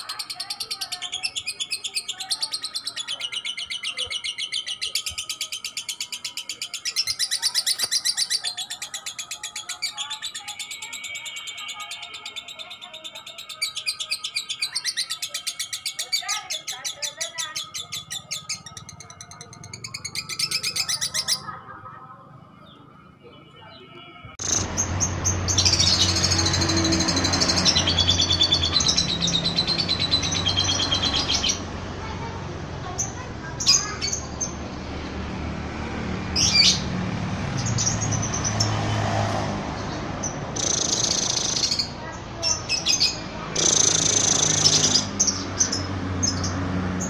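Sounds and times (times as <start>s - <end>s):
lovebird chattering trill: 0.0s - 21.6s, 40.5s - 46.5s
high bird chirping: 0.0s - 32.2s, 32.9s - 34.7s, 36.3s - 47.0s.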